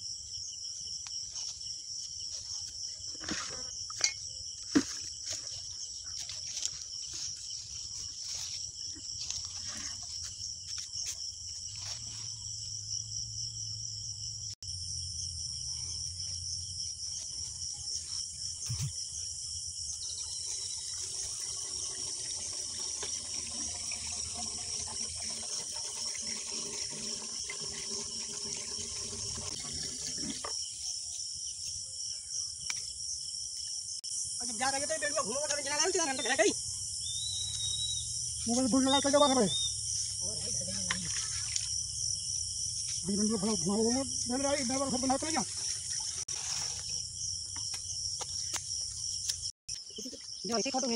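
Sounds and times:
insects chirring: 0:00.0 - 0:50.9
water gurgling into pump: 0:20.3 - 0:30.7, 0:44.6 - 0:46.3.

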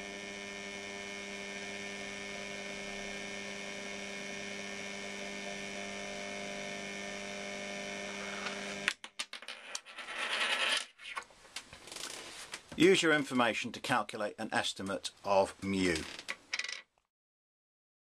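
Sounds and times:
electric motor humming: 0:00.0 - 0:08.9.

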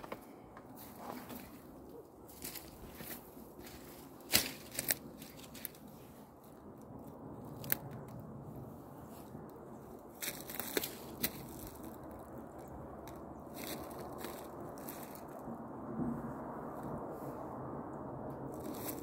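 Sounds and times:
footsteps crunching through snow: 0:00.8 - 0:06.2, 0:10.2 - 0:12.2, 0:13.5 - 0:15.4
twigs snapping: 0:02.3 - 0:05.9, 0:06.8 - 0:08.2, 0:10.2 - 0:15.4.

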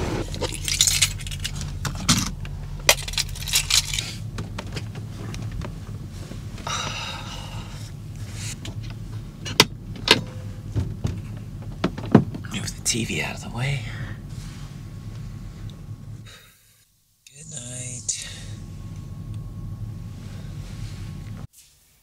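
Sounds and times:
low steady hum: 0:00.0 - 0:22.0
objects clinking and rattling: 0:00.2 - 0:04.9.

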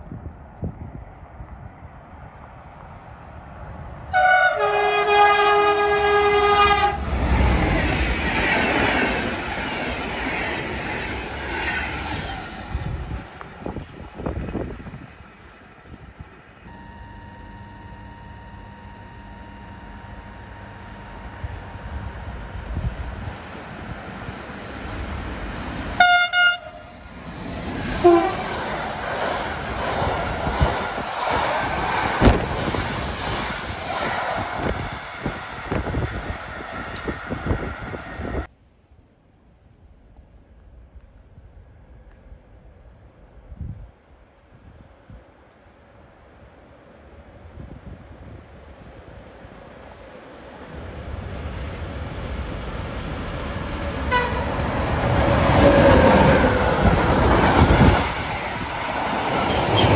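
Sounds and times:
freight wagons rumbling on rails: 0:00.0 - 0:38.5, 0:47.0 - 0:59.9
train rushing past: 0:00.7 - 0:38.5, 0:47.0 - 0:59.9
locomotive horn blast: 0:04.1 - 0:07.2, 0:16.7 - 0:23.3, 0:25.9 - 0:27.0, 0:28.0 - 0:28.6, 0:54.0 - 0:56.9
train coaches clattering over rails: 0:54.0 - 0:59.9.

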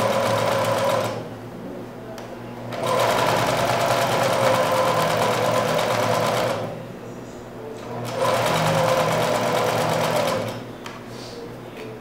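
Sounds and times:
electric sewing machine stitching: 0:00.0 - 0:01.2, 0:02.8 - 0:06.7, 0:08.0 - 0:10.6.

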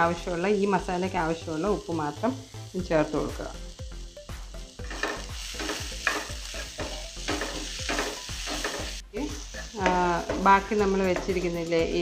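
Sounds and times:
vegetables sizzling in oil: 0:00.0 - 0:12.0
spatula scraping and tapping pan: 0:04.8 - 0:09.0, 0:09.6 - 0:11.6.

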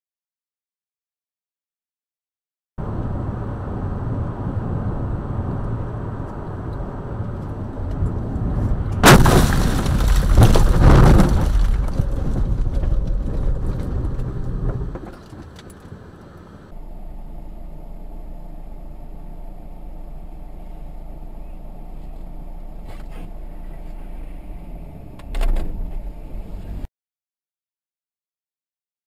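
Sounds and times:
car cabin road noise: 0:02.8 - 0:26.9
car scraping through snow and dirt: 0:08.0 - 0:16.4
loud crash bang: 0:09.0 - 0:13.1.

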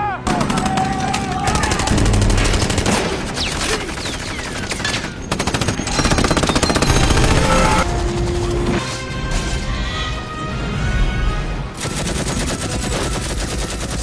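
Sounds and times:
automatic gunfire: 0:11.8 - 0:14.0.

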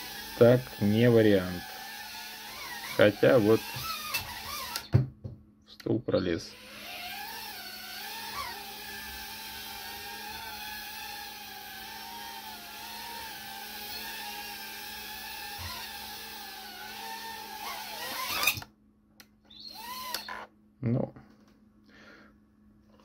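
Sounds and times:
small drone motors whining: 0:00.0 - 0:04.9, 0:06.5 - 0:18.6, 0:19.5 - 0:20.5.

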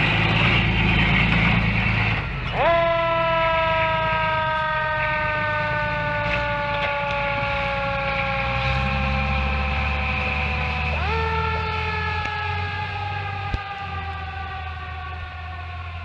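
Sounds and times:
fire engine siren: 0:00.0 - 0:16.0
truck engine rumbling: 0:00.0 - 0:16.0.

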